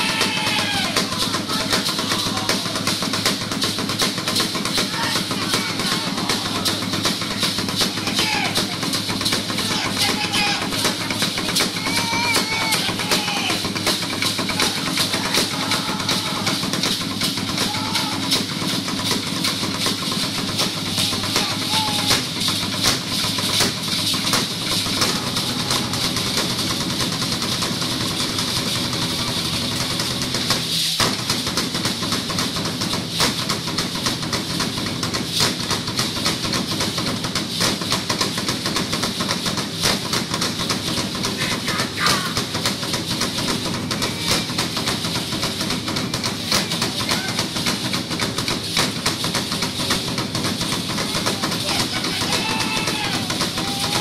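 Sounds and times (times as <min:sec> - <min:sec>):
voices calling out: 0:00.0 - 0:03.0, 0:04.7 - 0:18.8, 0:20.3 - 0:22.4, 0:24.6 - 0:26.8, 0:41.4 - 0:42.7, 0:43.7 - 0:48.0, 0:50.8 - 0:54.0
drum-led music: 0:00.0 - 0:54.0.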